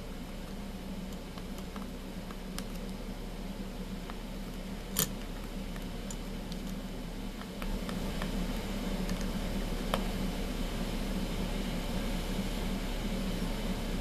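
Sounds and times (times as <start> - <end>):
low room hum: 0.0 - 14.0
pencil clicks and taps: 0.4 - 3.0, 7.4 - 10.1.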